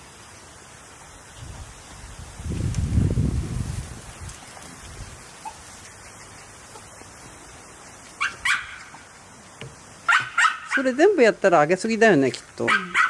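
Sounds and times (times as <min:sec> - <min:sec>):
dog yipping: 0:08.2 - 0:09.0, 0:10.1 - 0:10.9, 0:12.6 - 0:13.0.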